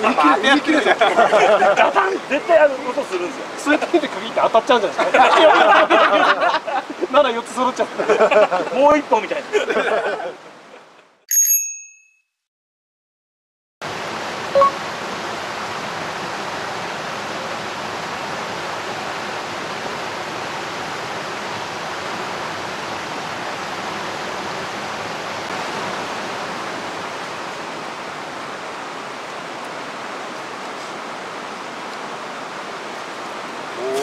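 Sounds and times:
stream rushing: 0.0s - 11.0s, 13.8s - 34.0s
short ringing clink: 11.3s - 12.4s.

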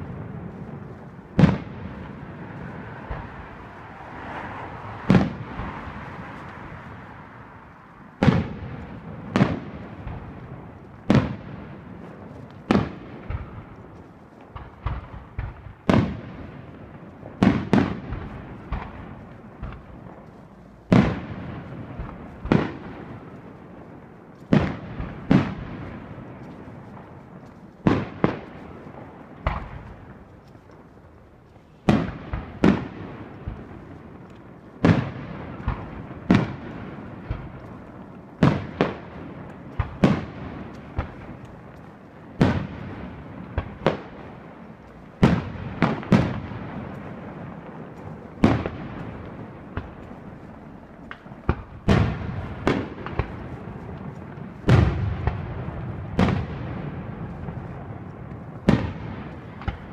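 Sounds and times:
fireworks bursting: 0.0s - 59.9s.

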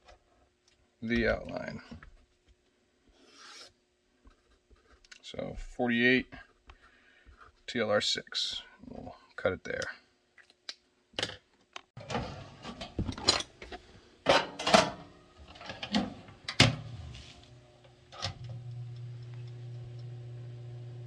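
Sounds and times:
toaster oven humming: 14.6s - 21.0s.

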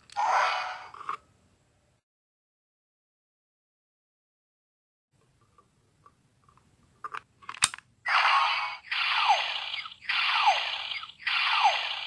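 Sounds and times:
sharp plastic click: 7.1s - 7.9s
looping electronic sound effect: 8.3s - 12.0s.

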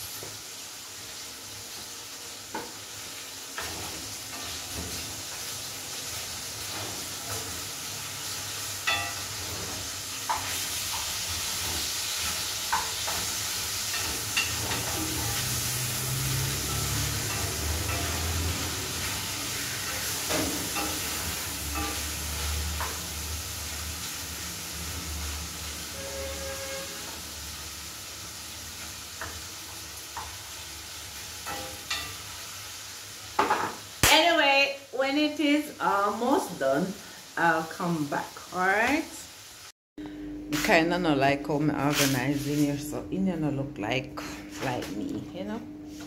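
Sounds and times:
food sizzling in a pan: 0.0s - 40.7s, 41.8s - 43.0s.

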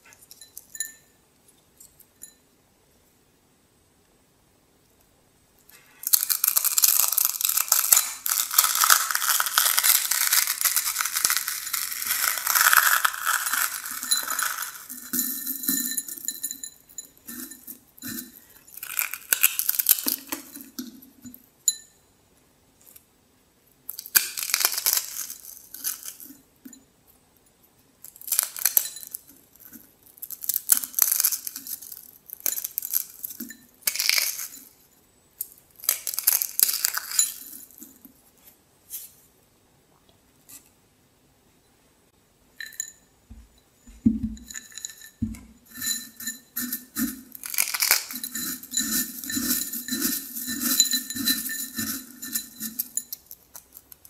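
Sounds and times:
dry noodles crackling when crushed: 5.7s - 15.2s, 18.0s - 20.4s, 23.9s - 26.3s, 29.6s - 34.6s, 35.4s - 37.8s, 45.7s - 54.0s
fragments falling into glass bowl: 5.7s - 20.9s, 23.9s - 26.4s, 28.1s - 29.3s, 30.2s - 34.8s, 35.8s - 37.9s, 43.9s - 54.0s.

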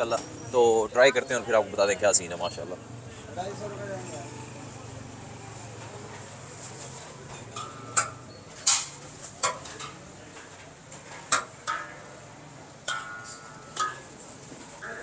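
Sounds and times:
steel ladle clinking on pots: 7.2s - 15.0s.

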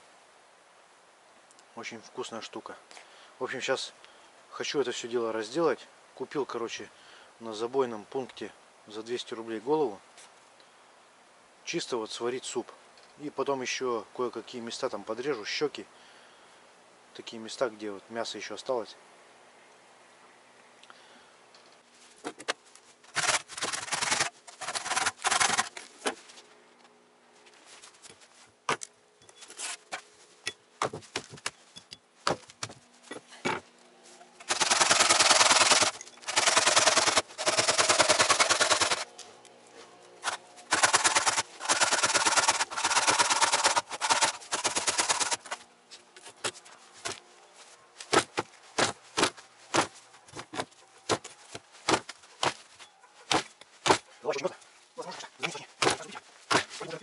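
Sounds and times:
hand saw rasping through bone: 23.1s - 25.7s, 34.5s - 39.0s, 40.2s - 45.6s
sharp axe chops: 48.1s - 49.9s, 53.3s - 54.1s, 55.8s - 56.9s.

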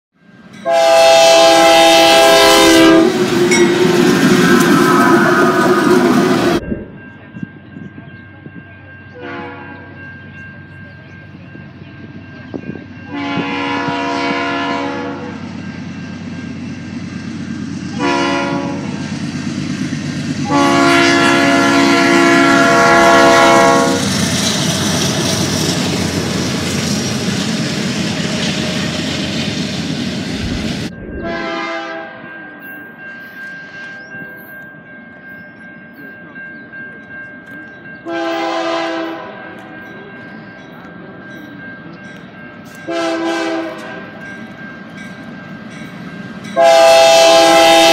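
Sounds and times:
freight train rumble and wheel clatter: 0.2s - 47.9s
locomotive horn blasts: 0.6s - 6.6s, 9.1s - 9.9s, 13.1s - 15.5s, 17.9s - 19.0s, 20.4s - 24.2s, 31.2s - 32.3s, 38.0s - 39.5s, 42.9s - 44.2s, 46.6s - 47.9s.

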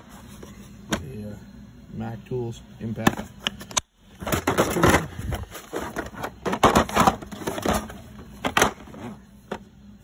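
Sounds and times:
plastic cases knocking and scraping: 4.2s - 9.6s.

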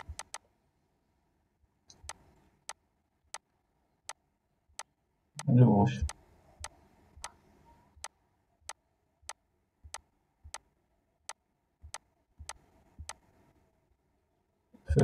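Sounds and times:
computer mouse clicking: 0.0s - 0.5s, 1.9s - 3.5s, 4.8s - 7.4s, 8.0s - 10.7s, 11.3s - 13.3s.

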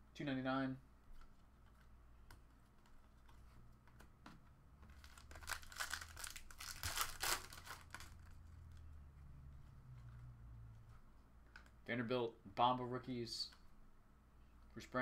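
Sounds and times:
foil wrapper tearing and crinkling: 5.0s - 8.4s.

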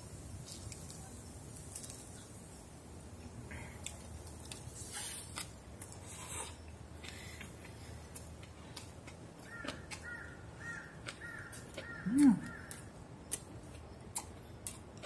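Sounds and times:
chewing crisp food: 0.4s - 2.4s, 3.8s - 15.0s
bird calling: 9.4s - 12.9s.

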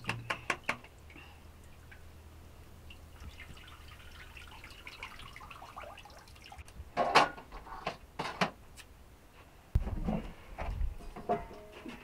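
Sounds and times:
water trickling and dripping: 0.0s - 6.8s.

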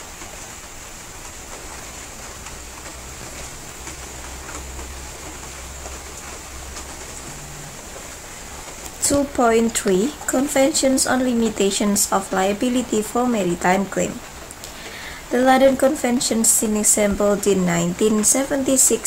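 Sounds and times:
background hiss: 0.0s - 19.0s.

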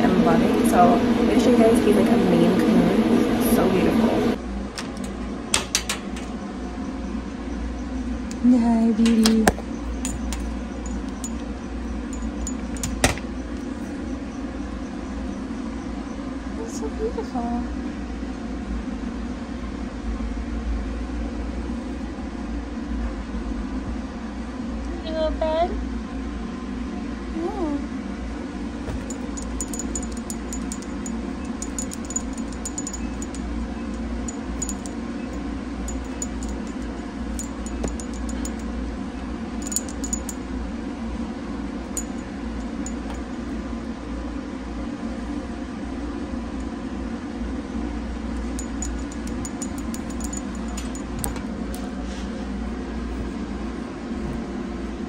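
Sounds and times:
steady low hum: 0.0s - 55.0s
toy jingling and clicking: 9.9s - 13.2s, 28.9s - 38.7s, 39.6s - 40.4s, 42.0s - 43.4s, 48.4s - 51.4s.

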